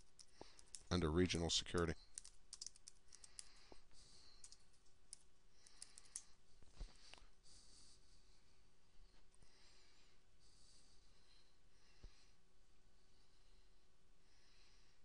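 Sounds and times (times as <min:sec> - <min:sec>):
keyboard typing: 0:00.0 - 0:06.3.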